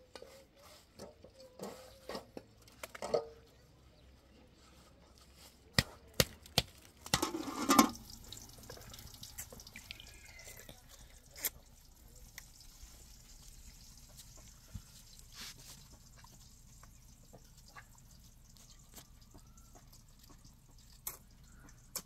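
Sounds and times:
water splashing and dripping: 6.2 - 22.0.

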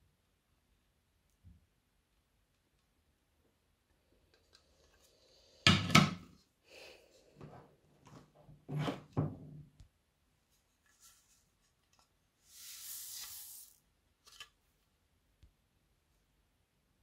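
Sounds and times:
beads pouring into a bowl: 12.5 - 13.8.

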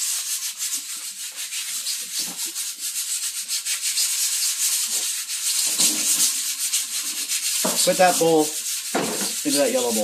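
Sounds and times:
scratchy rubbing noise: 0.0 - 10.0.

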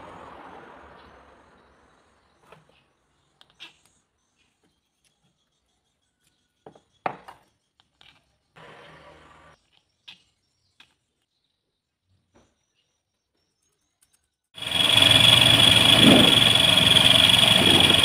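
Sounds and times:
steady noise: 14.6 - 18.0.

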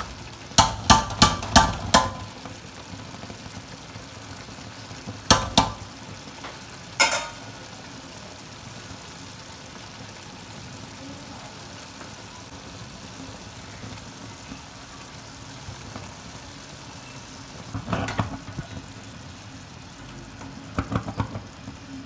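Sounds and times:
rice and water simmering: 0.0 - 22.0
metal spoon clanking on pot rim: 7.0 - 7.5.

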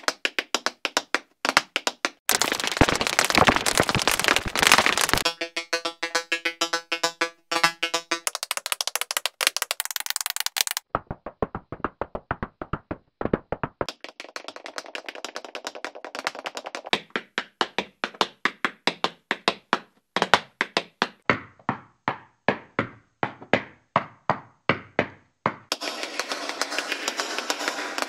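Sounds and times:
tap shoe taps: 0.0 - 2.2, 8.2 - 25.8.

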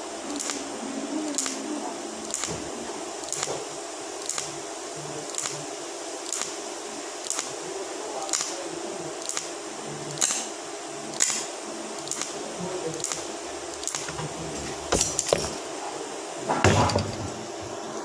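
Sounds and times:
welding arc hissing: 0.0 - 18.0
sharp ticks: 4.2 - 4.5, 6.3 - 6.6, 7.2 - 7.5, 9.2 - 9.5.

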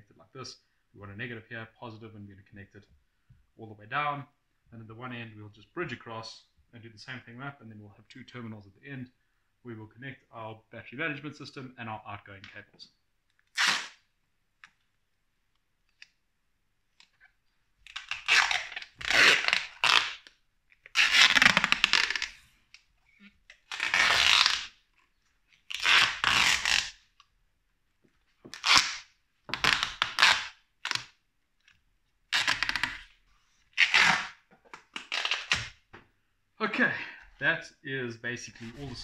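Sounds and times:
masking tape ripping: 13.5 - 14.0, 17.8 - 22.4, 23.4 - 24.8, 25.6 - 27.2, 28.5 - 31.1, 32.3 - 33.1, 33.8 - 35.8.

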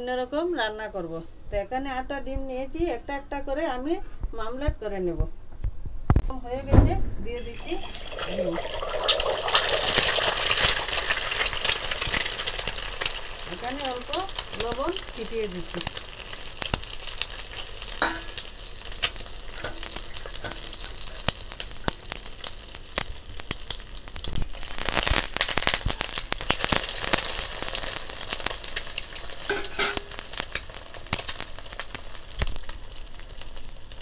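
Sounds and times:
egg sizzling in oil: 7.4 - 34.0
metal spatula scraping pan: 19.5 - 21.0, 29.5 - 30.2.

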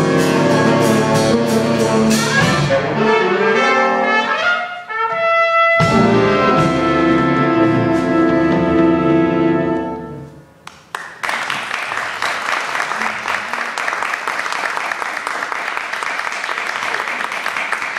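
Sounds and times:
jazz band held chord: 0.0 - 10.4
audience applause: 10.7 - 17.9.

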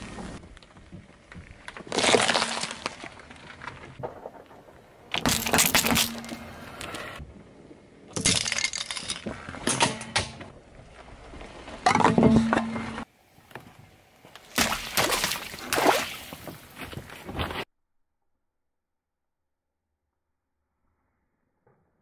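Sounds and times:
tyre crushing small objects: 0.0 - 7.1, 8.1 - 9.8
water balloons bursting and splashing: 1.8 - 3.1, 14.4 - 16.6.

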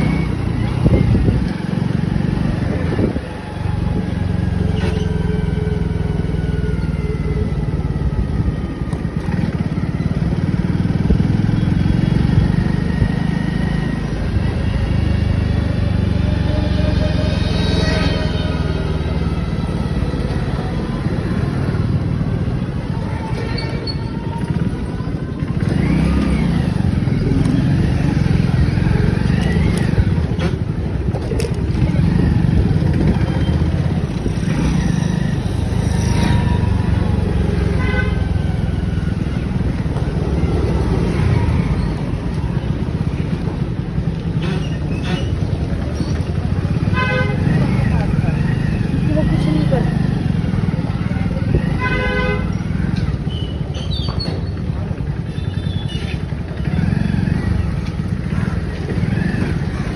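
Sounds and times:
motorcycle engine: 0.0 - 59.9
road noise: 0.0 - 59.9
vehicle horns: 37.4 - 38.5, 46.8 - 47.9, 51.5 - 53.7.

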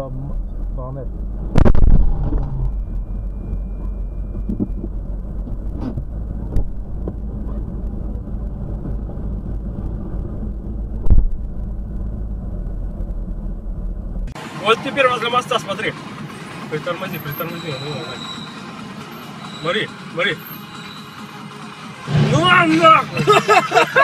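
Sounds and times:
car engine and road rumble: 0.0 - 24.0
loud sharp thump: 1.5 - 2.6, 11.0 - 11.4.

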